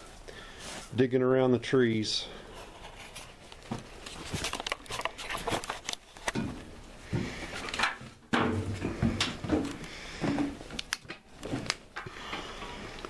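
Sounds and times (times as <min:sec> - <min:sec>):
clicks knocks and rustles: 0:03.5 - 0:06.6.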